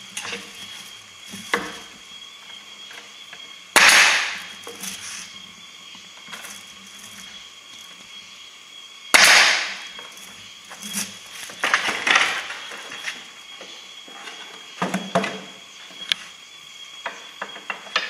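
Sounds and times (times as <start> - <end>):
nail gun shot: 3.8 - 4.5, 9.2 - 9.8.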